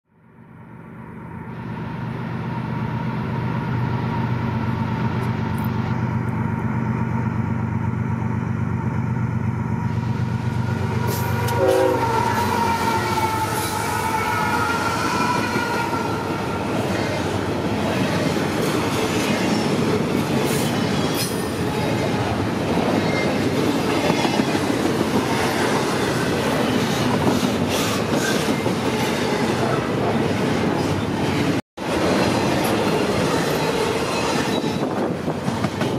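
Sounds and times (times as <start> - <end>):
diesel locomotive engines: 0.2 - 35.9
train horn: 9.9 - 17.4
clickety-clack of wheels: 22.8 - 29.3, 30.8 - 35.9
wheel squeal: 33.2 - 35.0.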